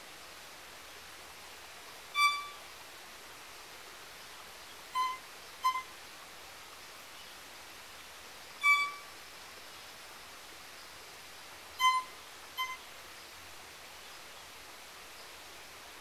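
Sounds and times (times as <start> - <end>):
faint steady hiss: 0.0 - 16.0
violin single notes: 2.2 - 2.6, 5.0 - 5.9, 8.6 - 9.1, 11.8 - 12.8.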